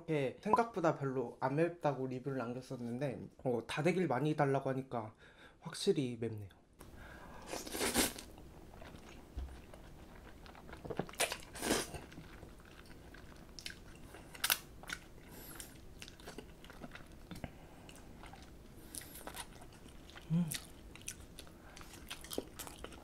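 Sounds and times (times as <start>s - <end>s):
soft chewing: 7.4s - 23.0s
noodles being slurped: 7.5s - 8.3s.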